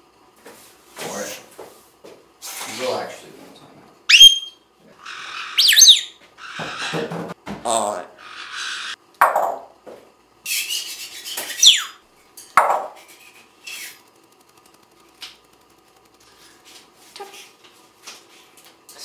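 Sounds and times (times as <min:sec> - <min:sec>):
broom sweeping floor: 0:00.4 - 0:03.5, 0:10.5 - 0:11.6
high falling whistle: 0:04.1 - 0:04.6
parrot short sharp calls: 0:04.1 - 0:06.9.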